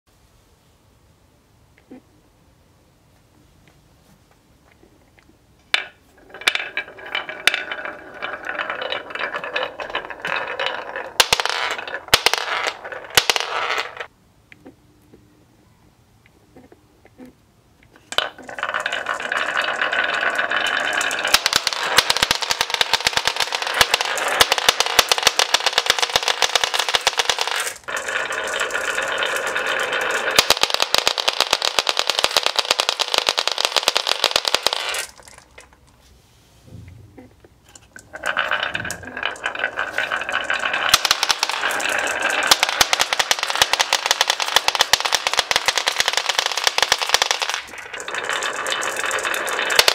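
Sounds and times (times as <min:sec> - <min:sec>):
glass marbles rattling on wooden track: 0:05.7 - 0:14.1, 0:18.0 - 0:35.9, 0:37.6 - 0:49.9.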